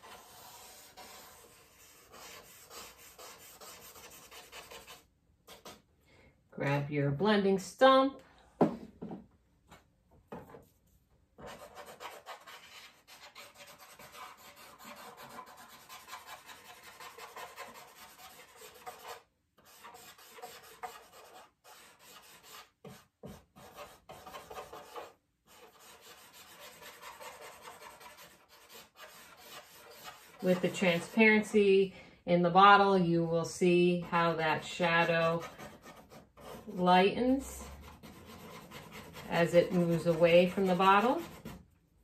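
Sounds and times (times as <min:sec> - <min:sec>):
charcoal rubbing on paper: 0:00.0 - 0:05.8, 0:11.4 - 0:31.5, 0:34.0 - 0:41.6.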